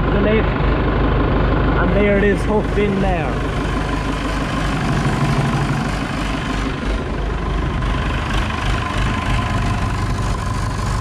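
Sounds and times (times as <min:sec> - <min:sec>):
diesel engine idling: 0:00.0 - 0:11.0.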